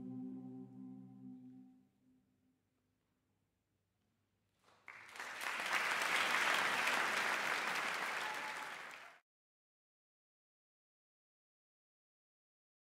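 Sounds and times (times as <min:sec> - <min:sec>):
audience applauding: 0:04.7 - 0:09.2.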